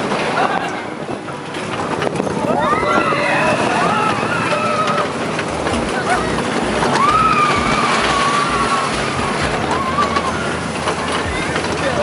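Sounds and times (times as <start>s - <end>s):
roller coaster train rattling: 0.0s - 12.0s
riders screaming: 2.5s - 5.3s, 6.0s - 10.6s.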